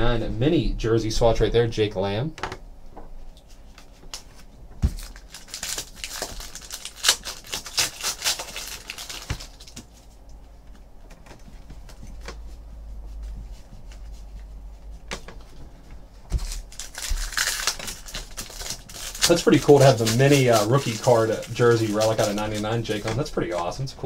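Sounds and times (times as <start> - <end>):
trading cards rustling and snapping: 3.4 - 10.1, 16.3 - 23.8.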